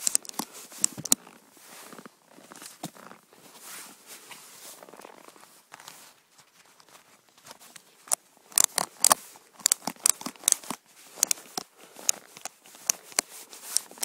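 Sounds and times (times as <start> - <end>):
ratchet strap clicking: 0.0 - 1.2, 8.1 - 14.0.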